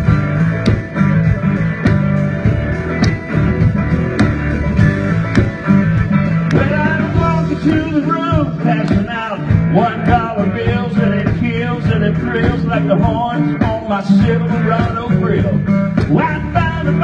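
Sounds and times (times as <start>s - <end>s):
country-rock music: 0.0s - 17.0s
man singing into microphone: 6.5s - 17.0s.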